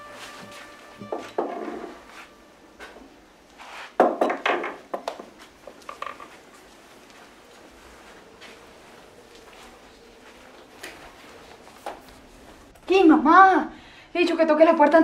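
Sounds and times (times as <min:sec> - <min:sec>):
small objects knocking on wooden shelf: 0:04.0 - 0:06.4.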